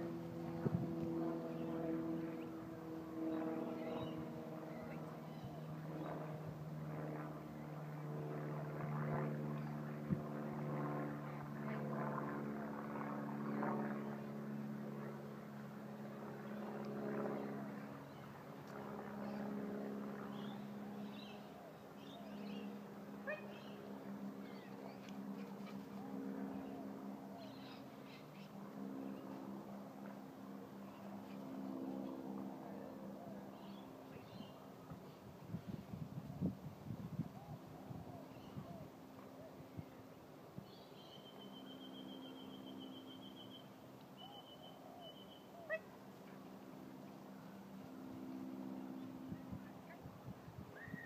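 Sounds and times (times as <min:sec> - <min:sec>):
distant engine droning: 0:00.0 - 0:35.6, 0:37.4 - 0:50.1
birds chirping: 0:03.3 - 0:06.1, 0:20.2 - 0:29.4.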